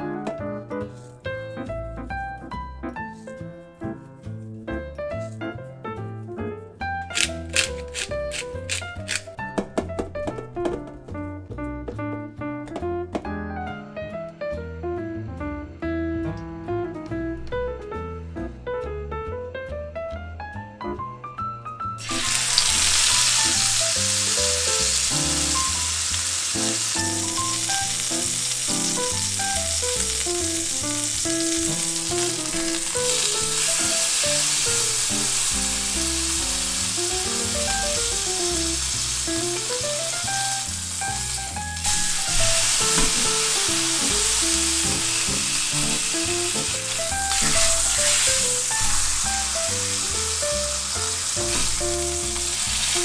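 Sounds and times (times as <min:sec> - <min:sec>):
steak sizzling in frying pan: 0:07.1 - 0:09.4, 0:22.0 - 0:53.0.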